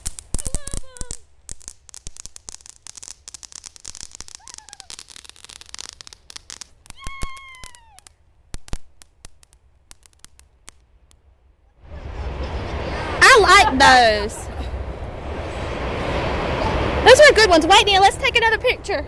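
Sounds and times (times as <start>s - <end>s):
firework hissing and crackling: 0.0s - 18.5s
high falling cry: 4.3s - 5.2s, 6.9s - 8.1s.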